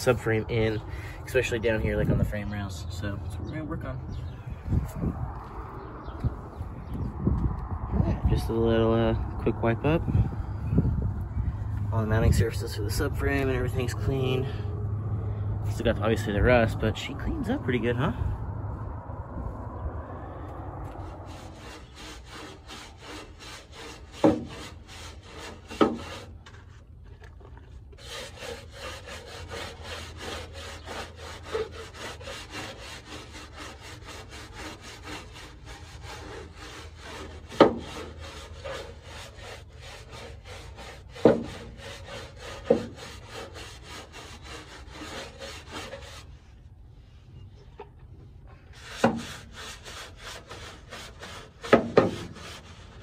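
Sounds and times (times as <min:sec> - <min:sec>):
brush scrubbing sheet metal: 0:21.0 - 0:26.9, 0:27.9 - 0:46.6, 0:48.6 - 0:53.0.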